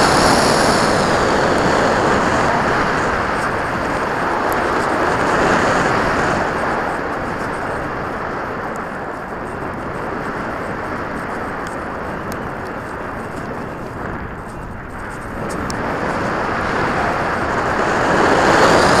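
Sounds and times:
wind noise rushing over camera: 0.0s - 19.0s.

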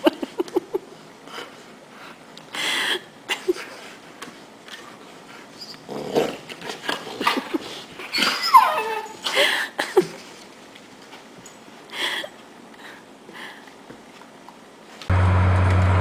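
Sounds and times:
dogs crying while playing: 7.1s - 9.5s.

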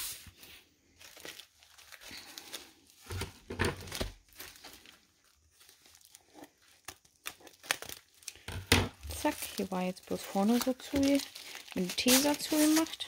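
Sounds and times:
plastic mailer crinkling: 0.8s - 13.0s
scissors cutting plastic: 6.1s - 13.0s.

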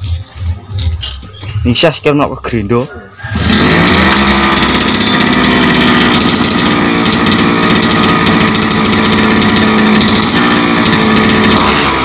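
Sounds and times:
grass trimmer engine running: 3.3s - 12.0s.

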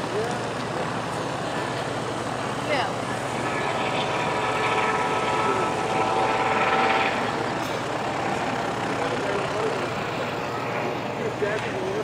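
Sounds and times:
helicopter flying past: 0.0s - 12.0s.

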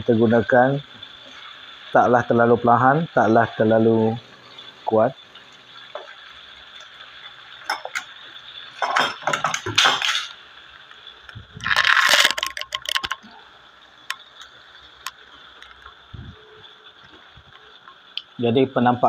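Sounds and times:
chicken deep-frying in oil: 0.0s - 19.0s
oil crackling with sharp clicks: 4.4s - 18.4s.

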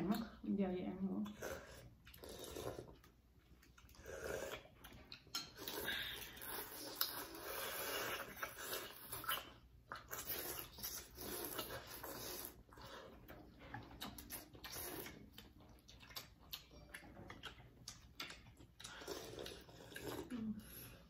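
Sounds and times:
chewing: 1.2s - 21.0s
slurping noodles: 1.4s - 3.0s, 3.9s - 4.8s, 5.6s - 13.3s, 18.9s - 21.0s.

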